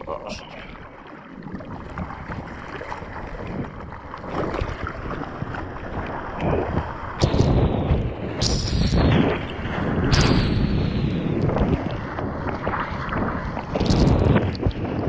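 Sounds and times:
water splashing from paddling: 0.0 - 15.0.

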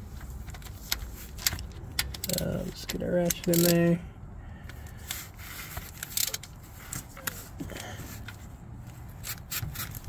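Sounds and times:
hand ratchet clicking: 1.4 - 3.8.

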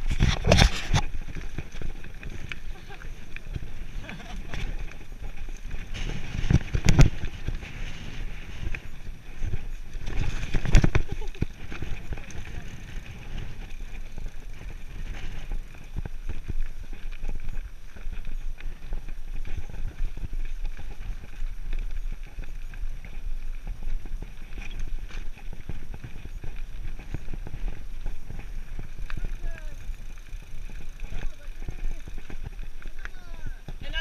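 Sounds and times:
bike clicks and rattles: 0.0 - 34.0
bike tyres crunching over gravel: 0.0 - 34.0.

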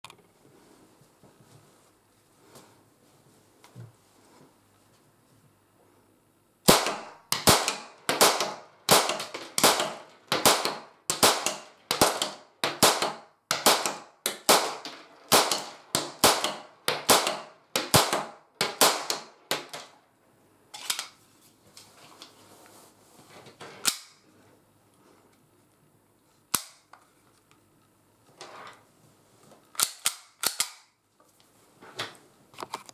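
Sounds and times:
toy gun firing sharp cracks: 6.7 - 19.9, 29.8 - 30.9.

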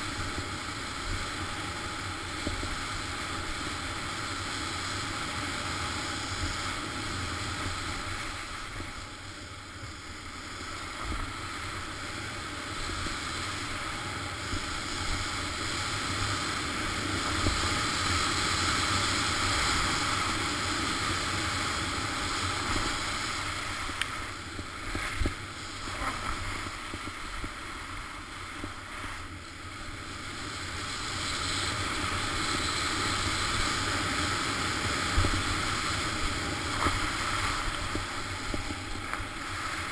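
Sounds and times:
skis hissing over snow: 0.0 - 39.9
wind rushing over microphone: 0.0 - 39.9
ski scrapes: 22.8 - 29.3.

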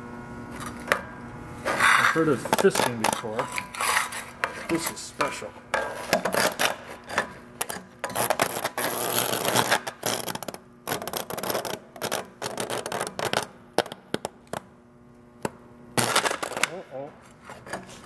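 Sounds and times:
electrical arcing crackling and popping: 2.1 - 3.4, 5.1 - 6.9, 7.6 - 14.8, 15.4 - 17.0.

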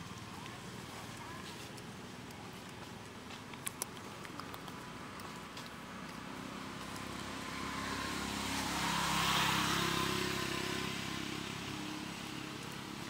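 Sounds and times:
vehicle passing by: 4.3 - 13.0.

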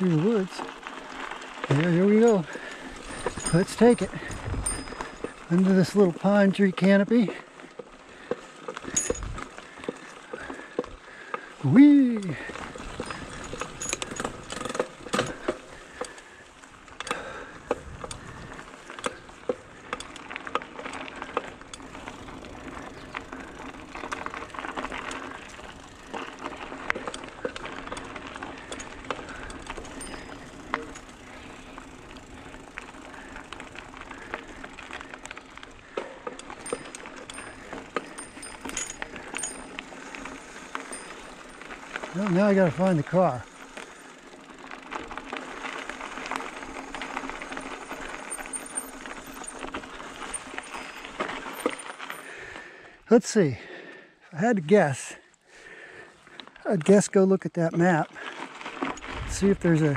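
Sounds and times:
bike frame rattling and clicking: 0.0 - 53.0, 55.6 - 59.9
tyres rustling on trail: 0.0 - 59.9.

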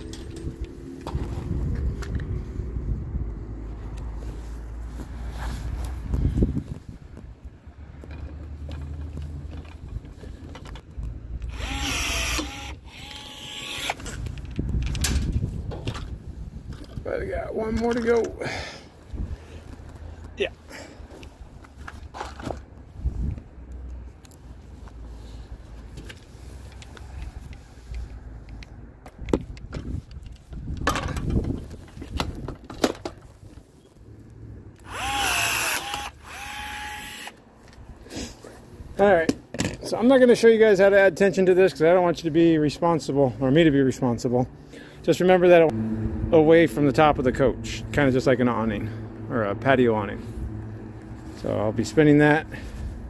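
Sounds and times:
rivet gun motor whining: 11.4 - 14.2, 34.8 - 37.4.

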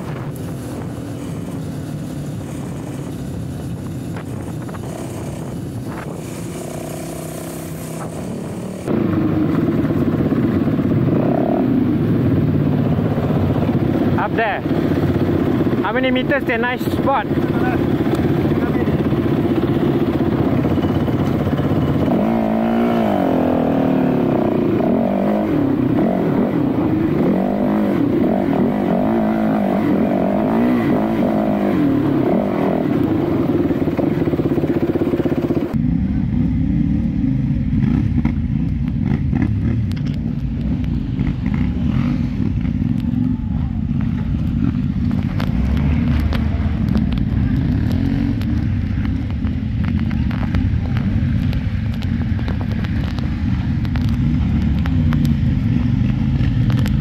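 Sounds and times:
low motorcycle engine rumble: 0.0 - 57.0
motorcycle engine revving: 0.0 - 57.0.

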